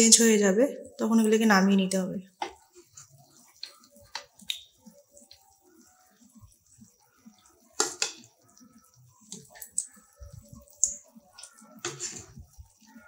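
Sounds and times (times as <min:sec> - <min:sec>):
food frying in oil: 0:00.0 - 0:13.0.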